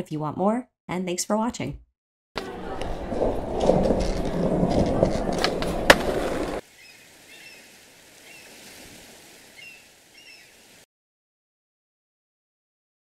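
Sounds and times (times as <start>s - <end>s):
skateboard wheels rolling: 2.4s - 6.6s.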